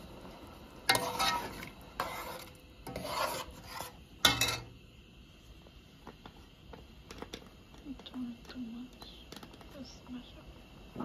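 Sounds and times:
metal spoon scraping a pot: 0.9s - 4.7s.

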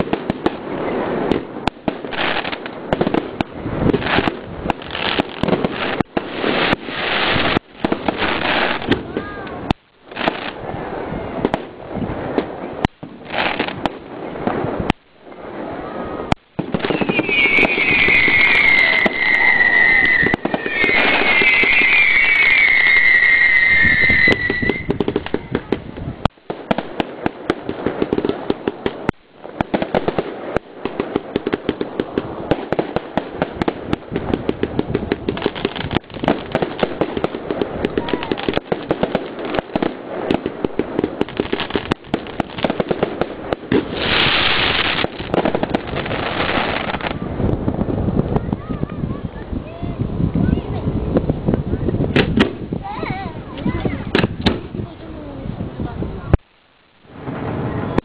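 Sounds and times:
fireworks banging and crackling: 0.0s - 58.0s
firework whistles: 16.0s - 25.5s.

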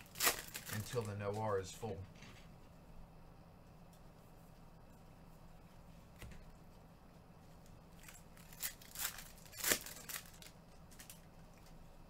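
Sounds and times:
wrapper being torn open: 0.0s - 1.1s, 8.0s - 11.3s.

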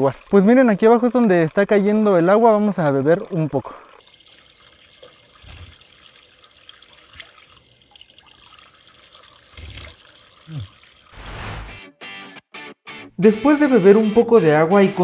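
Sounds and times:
spring water trickling: 0.0s - 11.2s.

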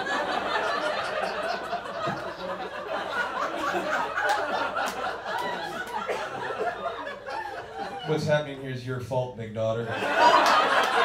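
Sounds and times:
audience laughing: 0.0s - 8.4s, 9.8s - 11.0s.

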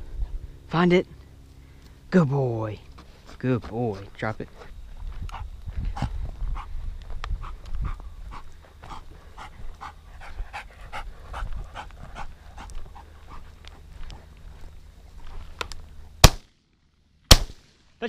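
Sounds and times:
dog panting: 3.2s - 14.8s.

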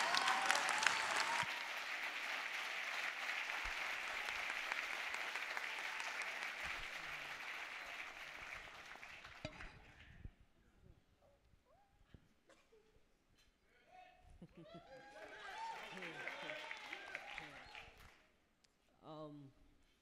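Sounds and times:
audience applauding: 0.0s - 9.9s, 14.9s - 18.2s.

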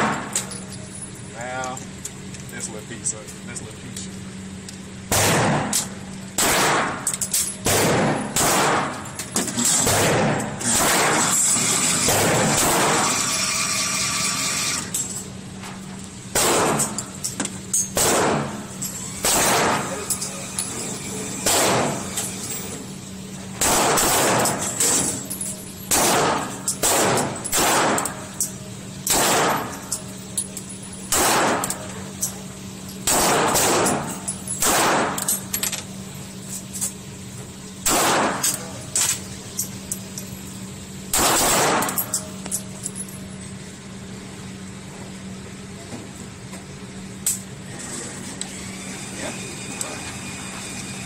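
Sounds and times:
steady low hum: 0.0s - 51.0s
handgun shots echoing indoors: 5.1s - 9.0s, 9.8s - 11.3s, 12.0s - 13.1s, 16.3s - 17.0s, 18.0s - 18.6s, 19.2s - 20.0s, 21.4s - 22.2s, 23.6s - 24.7s, 25.9s - 28.3s, 29.0s - 30.0s, 31.1s - 31.9s, 33.0s - 35.4s, 37.8s - 39.2s, 41.1s - 42.4s.

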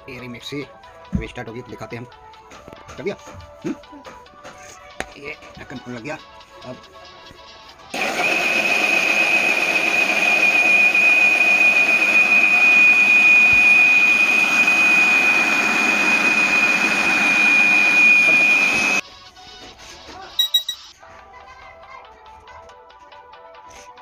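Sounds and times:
mixer grinder motor whining: 7.9s - 19.0s.

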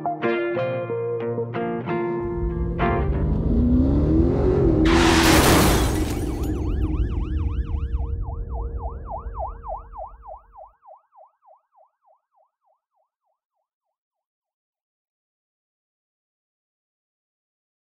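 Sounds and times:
loud rush of noise: 2.2s - 10.2s
low rumble: 2.2s - 10.5s
yelping emergency siren: 5.9s - 11.6s.

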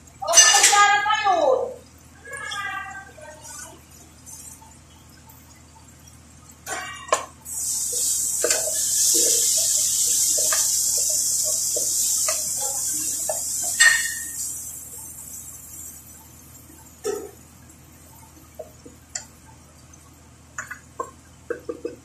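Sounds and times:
food sizzling in a pot: 7.1s - 17.4s.

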